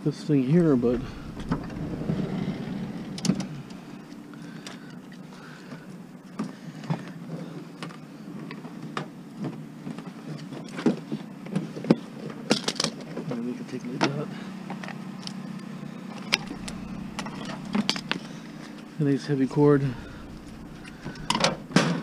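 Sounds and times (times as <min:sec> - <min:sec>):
steady low hum: 0:00.5 - 0:04.6, 0:16.3 - 0:22.0.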